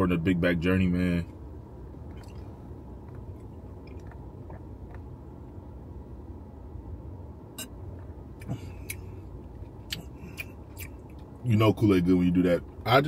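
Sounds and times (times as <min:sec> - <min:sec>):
car cabin hum: 0:00.0 - 0:13.0
man swallowing: 0:08.4 - 0:09.1.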